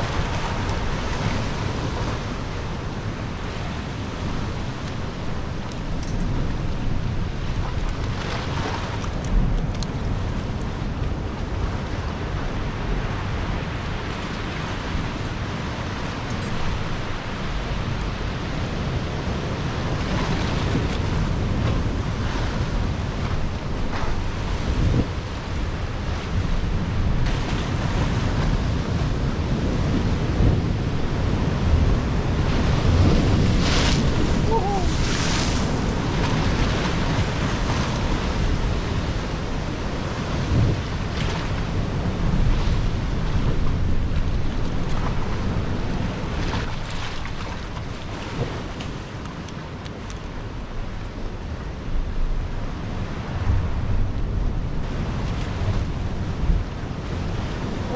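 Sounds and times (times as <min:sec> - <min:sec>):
sea surf splashing against rocks: 0:00.0 - 0:57.9
wind buffeting microphone: 0:00.0 - 0:57.9.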